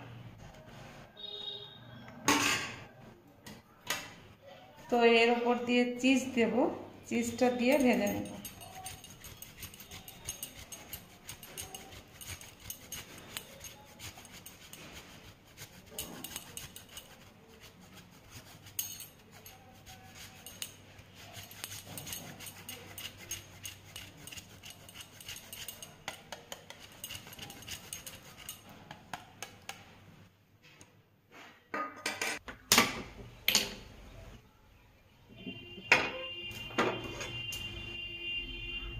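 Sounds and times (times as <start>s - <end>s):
cheese grater rasping: 7.1s - 29.0s
grater clinking against bowl: 7.1s - 29.6s.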